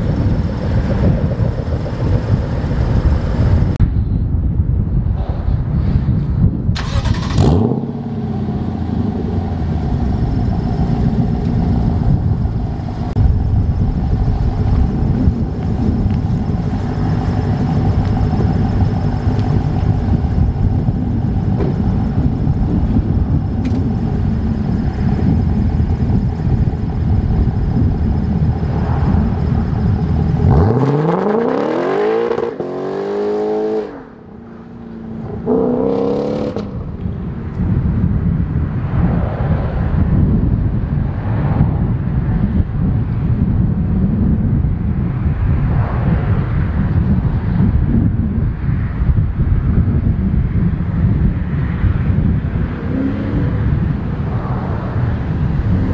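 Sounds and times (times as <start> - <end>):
car engine idling and revving: 0.0 - 4.2, 5.3 - 55.9.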